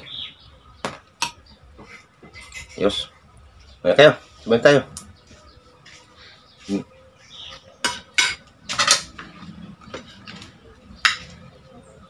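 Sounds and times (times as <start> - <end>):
cutlery clinking on a plate: 1.2 - 2.8, 7.8 - 9.2.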